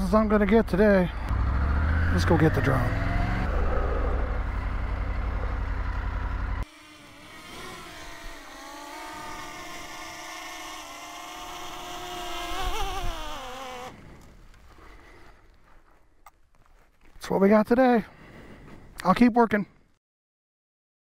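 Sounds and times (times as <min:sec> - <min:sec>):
drone propellers whining: 0:01.1 - 0:14.3
steady low rumble: 0:02.8 - 0:06.6.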